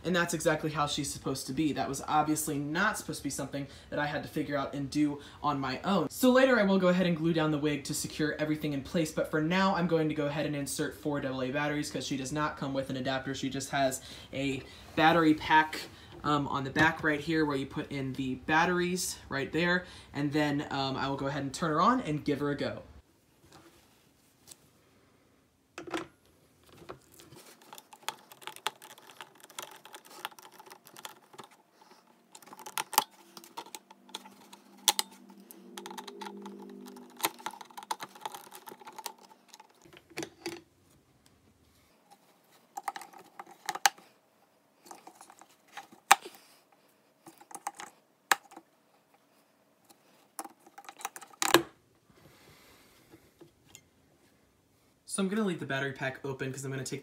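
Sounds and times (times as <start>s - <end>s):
batteries clicking against plastic: 27.1s - 40.6s, 47.2s - 48.6s.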